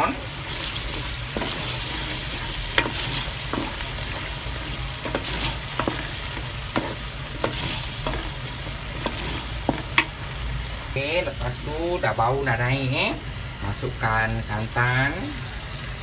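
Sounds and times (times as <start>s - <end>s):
paste sizzling in oil: 0.0s - 16.0s
wooden spoon knocking pot: 2.8s - 10.2s.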